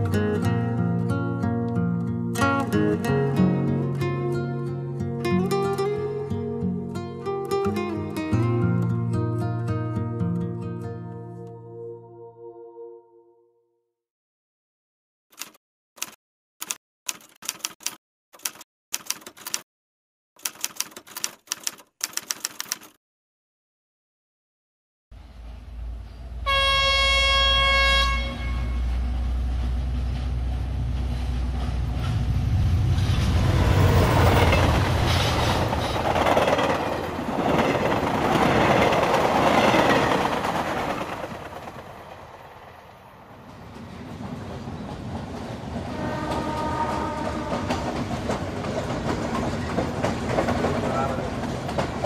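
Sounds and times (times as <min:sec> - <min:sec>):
train rumbling on rails: 0:25.2 - 0:52.0
train horn: 0:25.9 - 0:29.5, 0:45.8 - 0:48.0.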